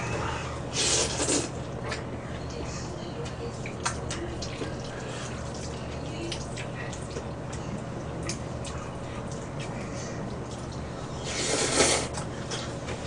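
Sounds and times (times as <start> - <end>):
slurping and smacking noodles: 0.7 - 2.0, 11.2 - 12.8.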